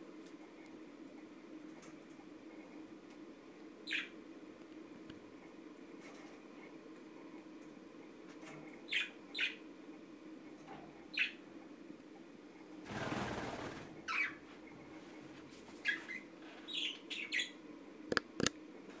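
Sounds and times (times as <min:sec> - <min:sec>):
low steady hum: 0:00.0 - 0:13.0, 0:13.6 - 0:19.0
sharp clicks: 0:18.1 - 0:18.6.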